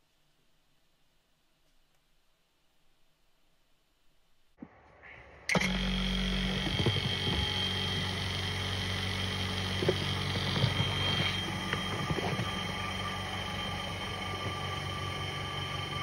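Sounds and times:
thin high whine: 4.6 - 16.0
small electric machine humming: 5.5 - 16.0.

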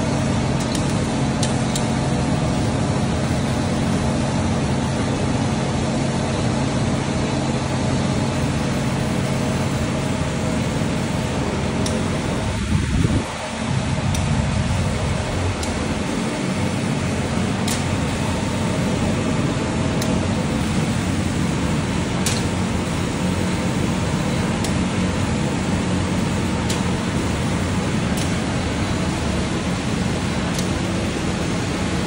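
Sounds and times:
blowers rushing hum: 7.9 - 32.0.

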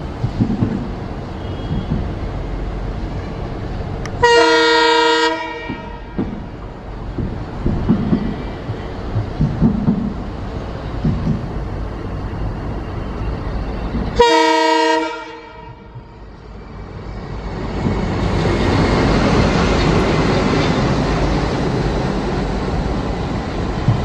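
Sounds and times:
diesel locomotive engine rumbling: 0.0 - 24.0
train wheels on rails: 0.0 - 24.0
locomotive air horn blast: 1.4 - 2.0, 4.2 - 6.2, 14.2 - 16.0.

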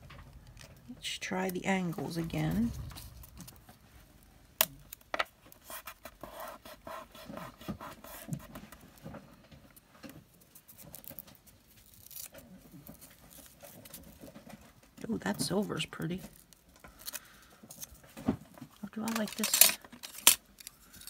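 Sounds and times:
scrapes and rustles of paper and tape: 4.8 - 21.0.

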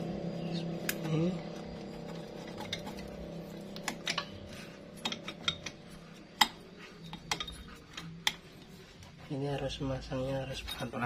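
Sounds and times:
metal clinks and taps: 5.0 - 8.5.

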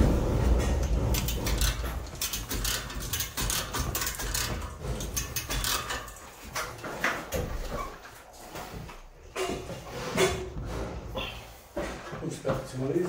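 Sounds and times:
chain block clicking and rattling: 0.8 - 6.5.

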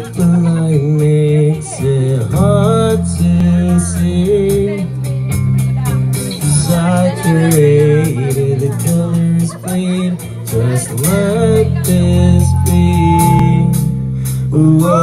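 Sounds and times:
drums: 0.0 - 15.0
guitar: 0.0 - 15.0
person singing: 6.6 - 15.0.

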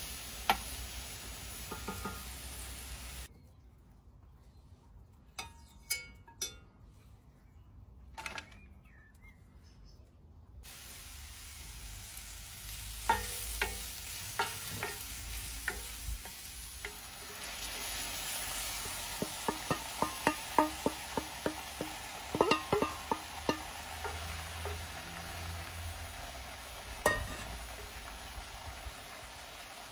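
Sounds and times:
mushrooms sizzling in butter: 0.0 - 3.3, 10.6 - 29.9.

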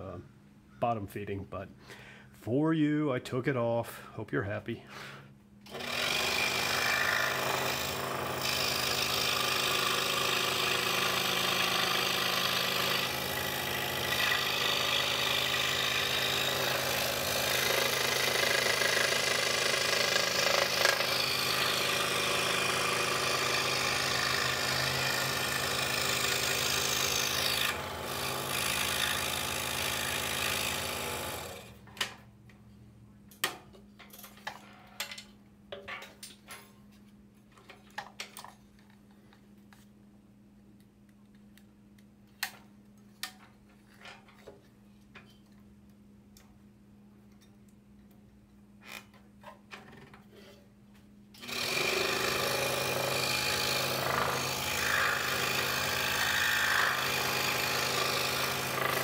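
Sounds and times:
scroll saw cutting wood: 5.7 - 31.8, 51.4 - 59.0.

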